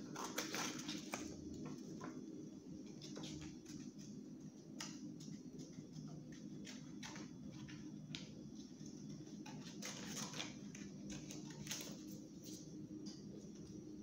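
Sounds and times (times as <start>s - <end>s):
paper rustling: 0.0s - 2.1s, 8.6s - 12.7s
steady low hum: 0.0s - 14.0s.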